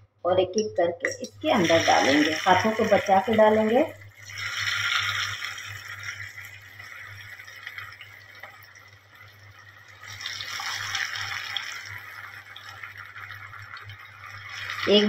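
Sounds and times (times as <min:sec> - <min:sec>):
low steady hum: 0:00.0 - 0:10.5
chicken sizzling in hot oil: 0:01.1 - 0:15.0.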